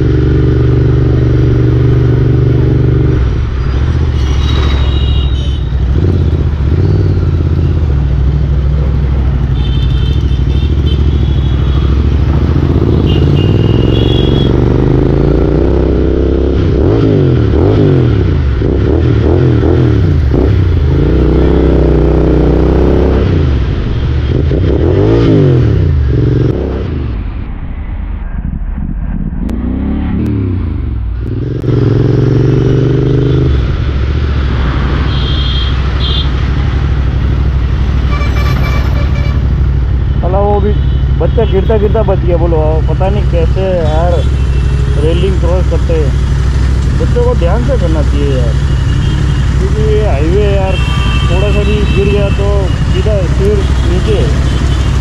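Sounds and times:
motorcycle engine accelerating: 0:05.8 - 0:35.2.

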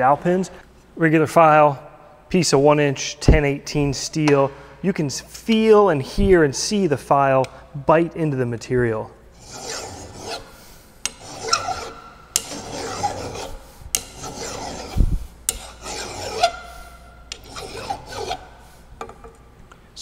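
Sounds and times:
hand file rasping on steel: 0:09.4 - 0:18.6.

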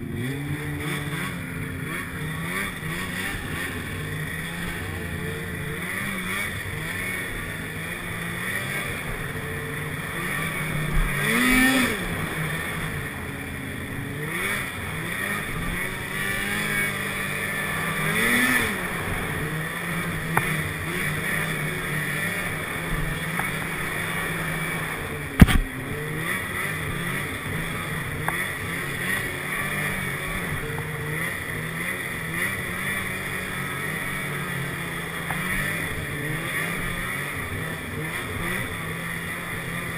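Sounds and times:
snowmobile engine running: 0:00.0 - 0:39.9
sharp knock: 0:25.4 - 0:25.6.

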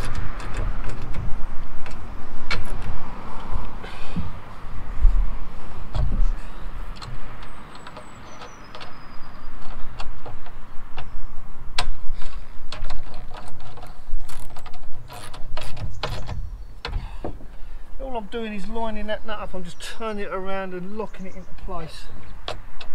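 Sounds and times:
metal clicks and knocks: 0:00.0 - 0:03.7, 0:05.8 - 0:17.6, 0:21.6 - 0:22.9.

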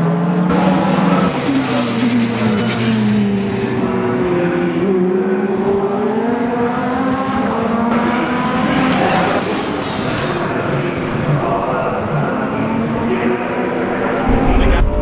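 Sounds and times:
racing car engines accelerating: 0:00.0 - 0:15.0.

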